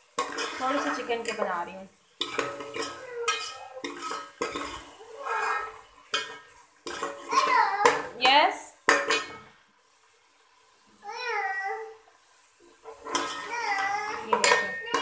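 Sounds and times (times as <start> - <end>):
ladle scraping metal pot: 0.0 - 9.5, 12.7 - 15.0
ladle clanking against pot: 14.3 - 15.0.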